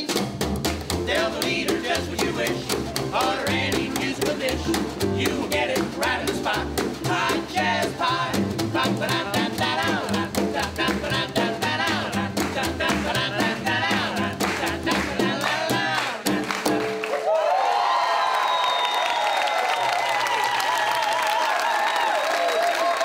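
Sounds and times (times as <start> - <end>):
upright bass: 0.0 - 17.0
snare drum: 0.0 - 17.1
ukulele: 0.0 - 17.2
men singing: 1.0 - 17.0.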